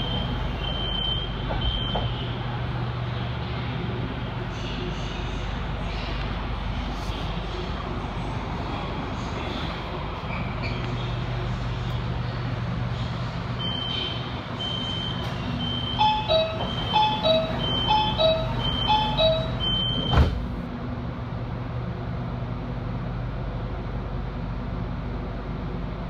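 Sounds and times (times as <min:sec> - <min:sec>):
steady train hum: 0:00.0 - 0:26.0
train doors thudding shut: 0:00.1 - 0:02.3, 0:14.8 - 0:20.6
short high beeps: 0:13.6 - 0:20.1.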